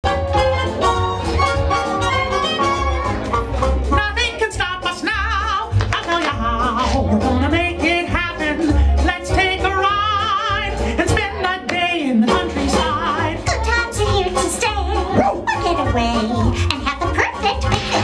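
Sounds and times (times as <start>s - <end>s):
bouncing bass line: 0.0s - 18.0s
person singing with vibrato: 3.9s - 18.0s.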